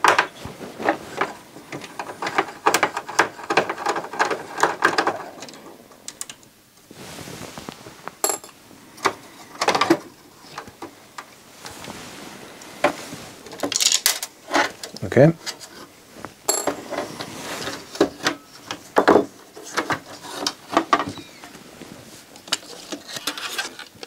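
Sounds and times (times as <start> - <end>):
clicks and knocks of cd player parts: 1.2 - 6.4.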